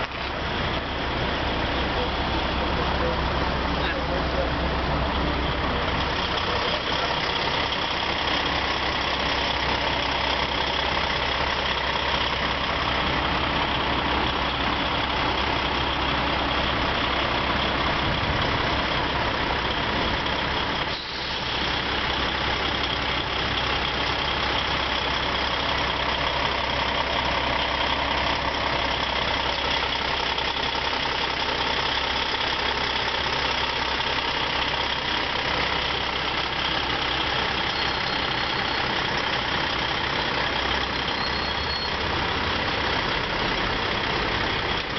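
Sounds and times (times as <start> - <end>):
diesel truck engines idling: 0.0 - 44.9.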